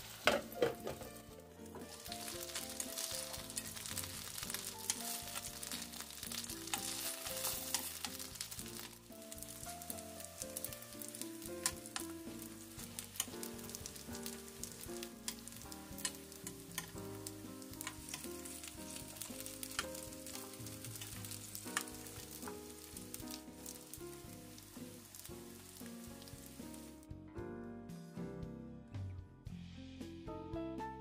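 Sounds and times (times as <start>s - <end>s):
dumplings sizzling in oil: 0.0s - 27.1s
metal tongs clicking on pan: 2.1s - 9.0s, 11.6s - 12.1s, 13.2s - 22.6s.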